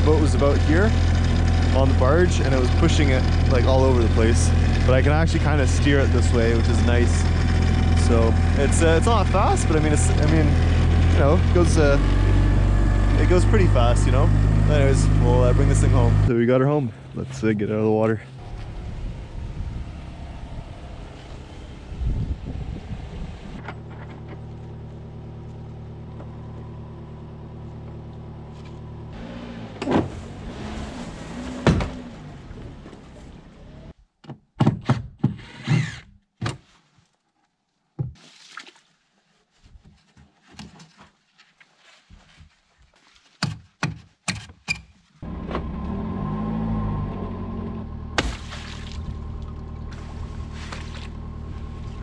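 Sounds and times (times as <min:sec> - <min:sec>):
vehicle engine idling: 0:00.0 - 0:29.4, 0:45.2 - 0:52.0
knocks and thuds on wood: 0:31.6 - 0:32.0, 0:34.2 - 0:35.4, 0:38.0 - 0:38.2, 0:43.4 - 0:44.6.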